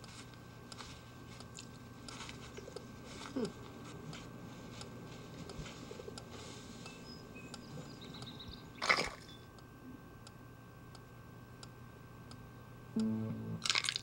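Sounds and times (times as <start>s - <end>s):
soft regular ticks: 0.0s - 8.4s
faint steady hum: 0.0s - 14.0s.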